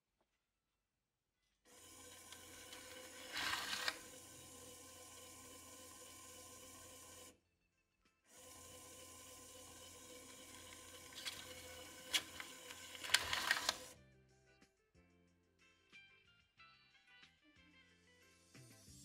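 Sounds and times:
banknote crackling: 0:01.8 - 0:04.7, 0:09.7 - 0:13.9.

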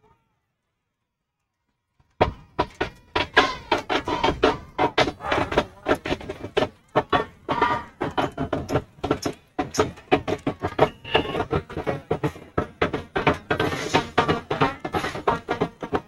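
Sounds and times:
rapid drumming: 0:02.2 - 0:16.0
crowd voices: 0:02.9 - 0:16.0
pitched music: 0:07.0 - 0:16.0.

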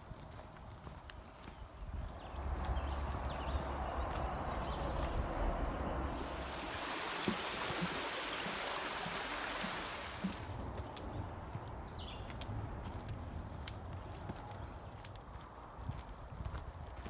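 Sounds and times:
footsteps on trail: 0:00.0 - 0:17.0
stream rushing over stones: 0:06.1 - 0:10.6.

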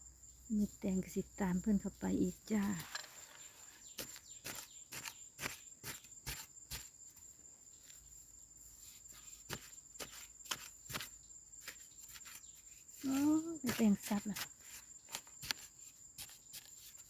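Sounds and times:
high insect trill: 0:00.0 - 0:17.0
metal bar scraping into dry soil: 0:02.7 - 0:06.9.

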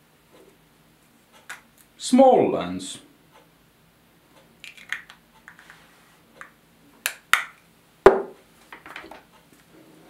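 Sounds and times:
knock on wooden table: 0:08.1 - 0:08.4.

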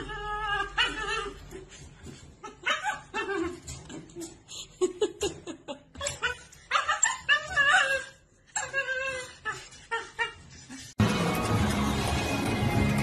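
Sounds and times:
dog whimpering and yipping: 0:00.0 - 0:04.4, 0:06.0 - 0:11.0.

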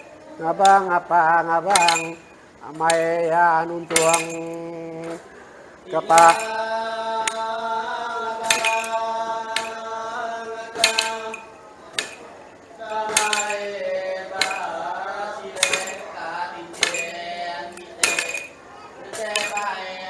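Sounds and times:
man chanting held notes: 0:00.0 - 0:11.5
staff striking tiled floor: 0:00.0 - 0:20.0
metallic jingle: 0:01.6 - 0:04.9, 0:06.0 - 0:07.5, 0:08.4 - 0:09.9, 0:10.8 - 0:20.0.

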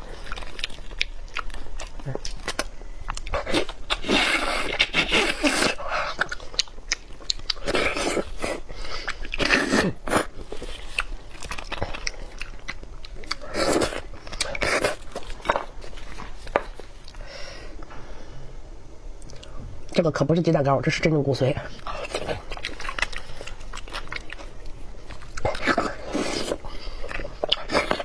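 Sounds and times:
chewing: 0:00.0 - 0:17.2, 0:21.8 - 0:28.0.

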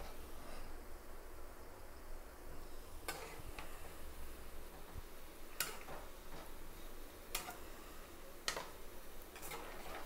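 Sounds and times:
deep-frying sizzle in oil: 0:00.0 - 0:10.0
metal spoon clicking on pan: 0:07.3 - 0:07.6.

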